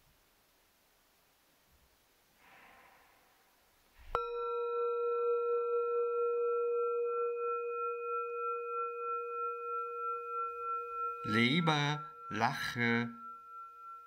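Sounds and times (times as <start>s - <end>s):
singing bowl ringing: 4.1s - 14.0s.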